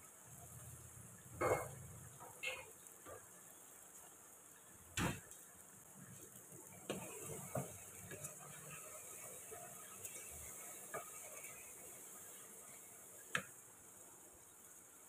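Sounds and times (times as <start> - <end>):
chicken sizzling in a pan: 0.0 - 15.0.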